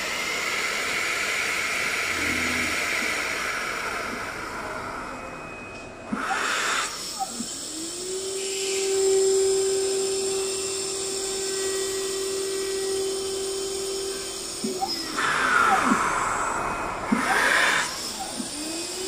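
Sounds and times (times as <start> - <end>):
milling machine whining: 0.0 - 19.0
motor tones rising and falling: 1.5 - 5.3.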